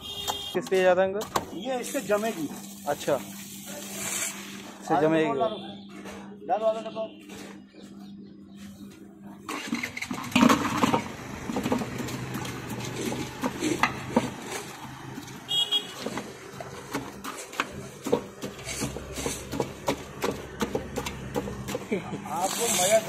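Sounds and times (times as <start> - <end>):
street background noise: 0.0 - 23.0
clatter of metal utensils: 9.5 - 14.8.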